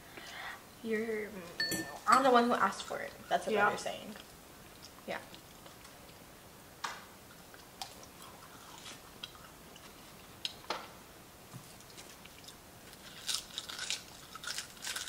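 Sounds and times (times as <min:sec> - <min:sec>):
chewing and smacking: 0:04.1 - 0:06.2, 0:07.3 - 0:10.7, 0:11.6 - 0:15.0
crisp crunches of seaweed: 0:12.9 - 0:15.0.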